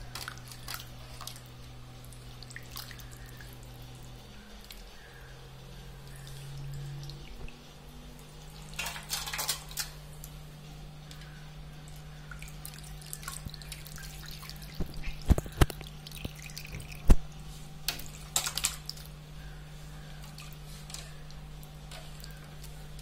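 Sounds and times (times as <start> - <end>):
water splashing and dripping: 0.1 - 3.6, 11.1 - 17.3, 17.9 - 19.2.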